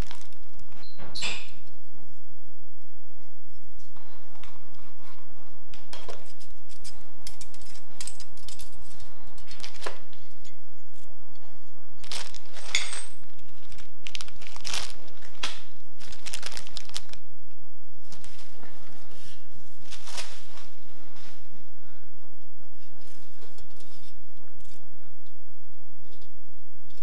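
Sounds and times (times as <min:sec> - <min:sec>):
plastic packaging crinkling: 0:00.0 - 0:00.8, 0:12.0 - 0:17.3, 0:18.0 - 0:18.6.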